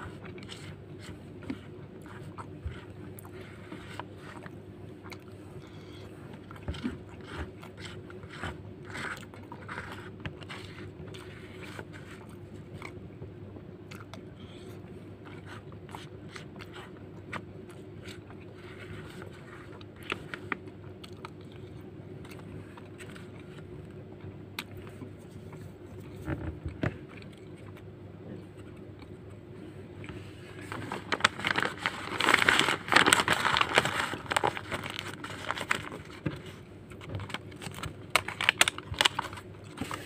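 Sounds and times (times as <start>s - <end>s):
steady low hum: 0.0s - 40.0s
chewing and mouth sounds: 0.1s - 13.0s, 13.8s - 23.7s, 24.6s - 29.4s
plastic spoon scraping rice: 6.6s - 12.8s.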